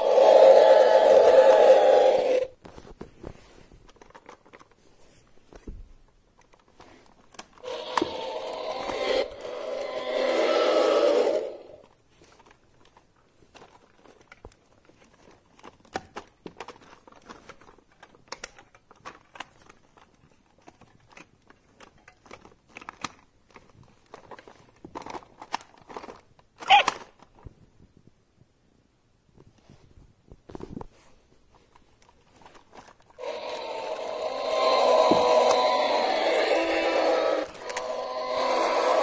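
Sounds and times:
loud rasping noise: 0.0s - 2.5s, 7.6s - 11.8s, 33.2s - 39.0s
plastic toy figures clicking on carpet: 11.8s - 27.6s.

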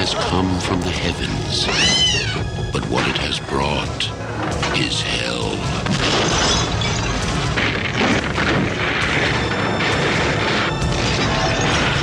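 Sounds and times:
ominous music: 0.0s - 12.0s
heavy booms and crashes: 5.6s - 12.0s.

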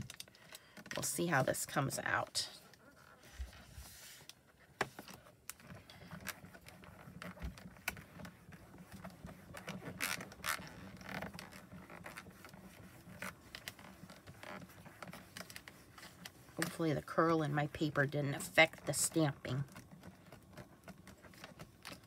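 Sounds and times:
hands rubbing on acrylic: 5.1s - 17.0s.

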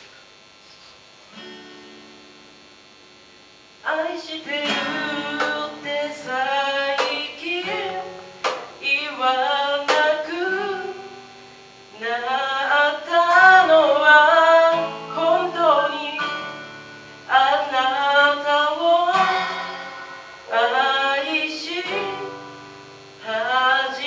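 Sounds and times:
strummed acoustic guitar: 1.3s - 2.4s, 3.9s - 24.0s
person singing: 3.8s - 11.2s, 11.9s - 16.7s, 17.3s - 22.6s, 23.2s - 24.0s
cajon strokes: 7.0s - 8.8s, 19.1s - 21.1s.

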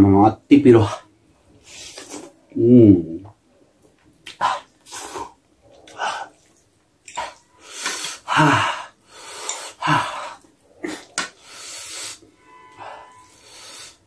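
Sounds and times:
man grunting: 8.3s - 8.9s, 9.8s - 11.1s.

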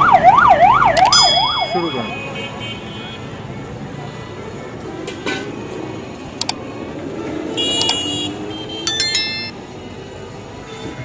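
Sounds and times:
street background noise: 0.0s - 11.0s
sharp click: 1.0s - 1.2s, 7.8s - 8.0s
bright metallic rings: 1.1s - 2.3s, 8.9s - 9.6s.

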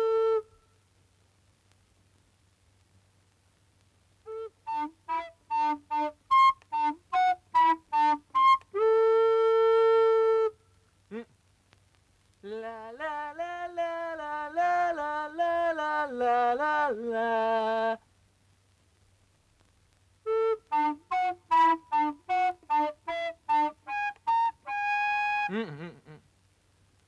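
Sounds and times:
short clipped sung notes: 20.3s - 26.2s.

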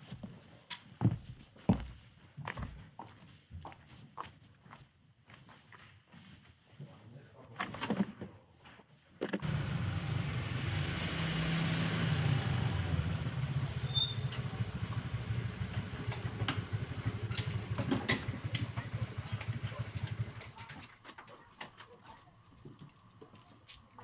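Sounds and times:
scooter engines running: 9.4s - 21.0s.

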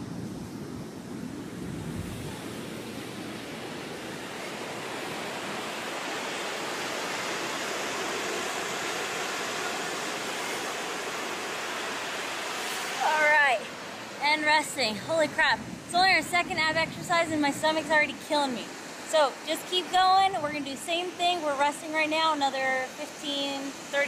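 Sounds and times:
wind on microphone: 0.0s - 9.4s, 14.4s - 19.1s
ocean surf washing on beach: 0.0s - 24.0s.

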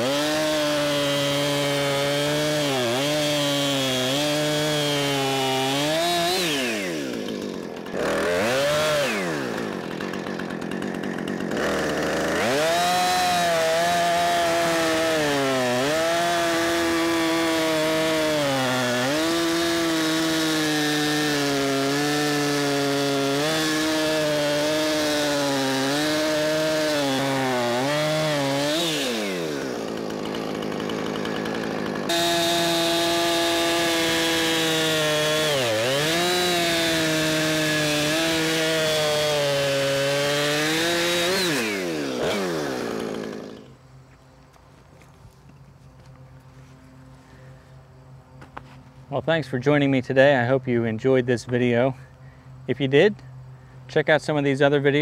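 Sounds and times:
chainsaw cutting log: 0.0s - 43.9s
chainsaw idling: 0.0s - 44.0s.

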